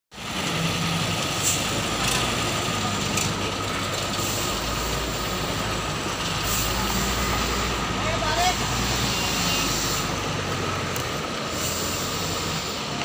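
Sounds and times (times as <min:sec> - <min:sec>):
diesel truck engine running: 0:00.1 - 0:13.0
short hiss bursts: 0:11.5 - 0:12.9.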